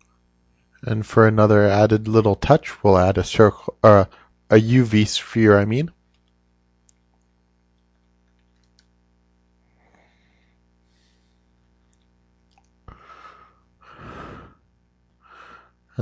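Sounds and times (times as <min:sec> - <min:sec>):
room hiss: 0:00.0 - 0:16.0
breaths close to microphone: 0:04.1 - 0:04.4, 0:12.9 - 0:15.8.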